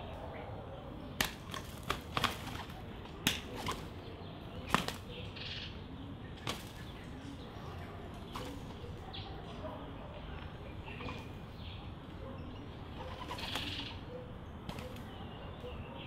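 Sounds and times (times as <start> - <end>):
dove wings clapping: 1.2 - 3.9, 4.6 - 5.1.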